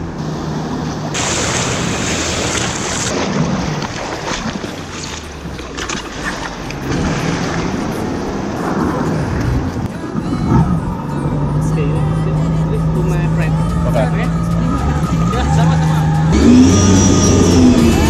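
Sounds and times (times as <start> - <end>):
jet ski engine idling: 0.0 - 3.1
water splashing: 0.4 - 10.9.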